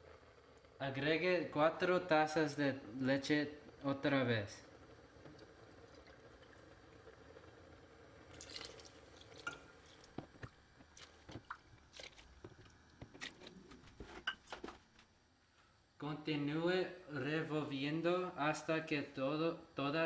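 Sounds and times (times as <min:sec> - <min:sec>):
milk pouring into a pot: 0:04.7 - 0:13.2
milk splash: 0:08.3 - 0:10.2.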